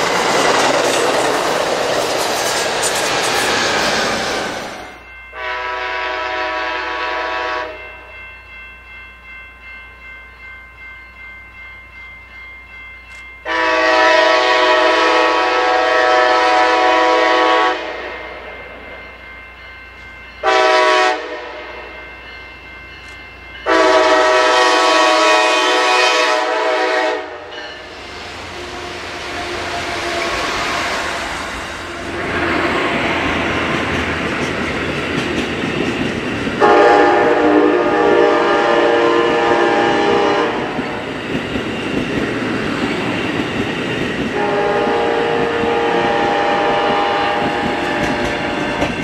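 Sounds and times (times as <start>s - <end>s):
rumble of passing train: 0.0s - 49.0s
crossing bells ringing: 4.8s - 49.0s
locomotive air horn blasts: 5.4s - 7.9s, 13.5s - 18.4s, 20.4s - 21.8s, 23.7s - 31.2s, 36.6s - 40.8s, 44.4s - 48.8s.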